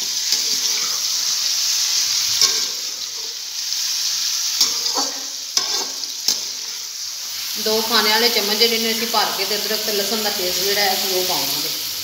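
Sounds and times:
chicken sizzling in hot fat: 0.0 - 12.0
metal spoon clinking on pot: 2.4 - 3.0, 4.6 - 6.7.

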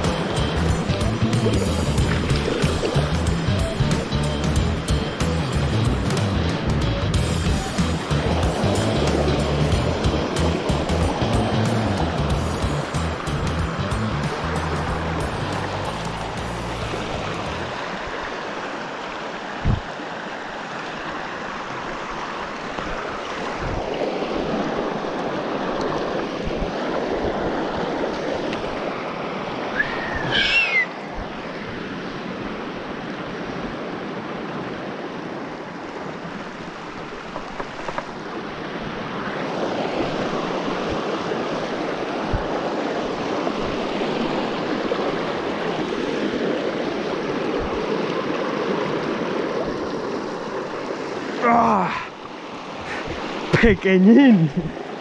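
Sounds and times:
rushing water: 0.0 - 55.0
thump: 19.6 - 19.9.

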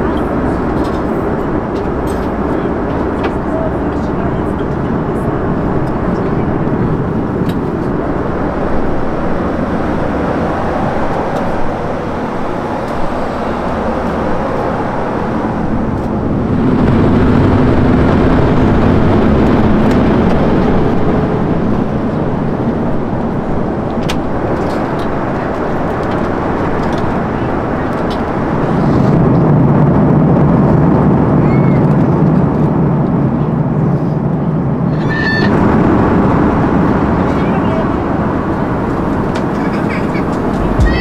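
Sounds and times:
low hum: 0.0 - 24.6, 35.5 - 41.0
airliner cabin engine drone: 0.0 - 41.0.

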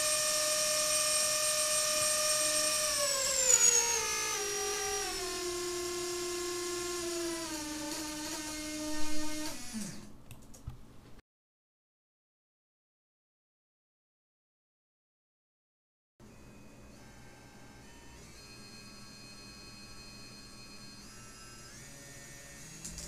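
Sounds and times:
drone motor whining: 0.0 - 10.1.

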